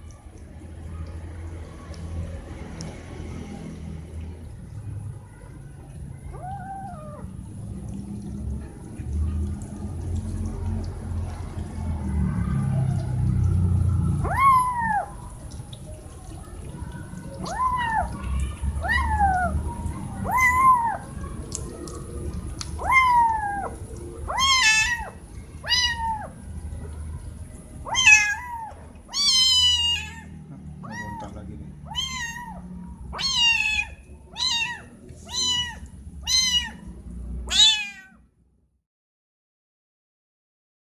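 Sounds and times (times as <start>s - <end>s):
kitten meowing: 6.3s - 7.3s, 14.2s - 15.2s, 17.4s - 19.5s, 20.2s - 21.1s, 22.8s - 26.4s, 27.8s - 38.2s.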